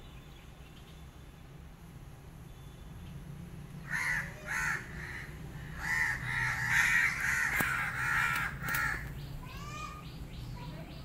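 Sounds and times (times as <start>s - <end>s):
crows cawing: 3.8s - 10.0s.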